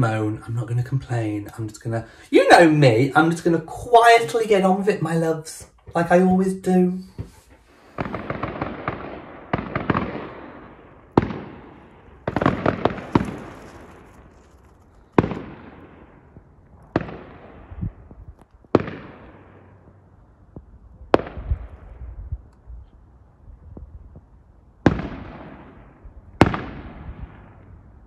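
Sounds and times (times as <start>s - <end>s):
fireworks crackling: 2.4s - 19.8s
fireworks bangs: 2.4s - 19.9s, 21.1s - 22.2s, 24.8s - 27.8s.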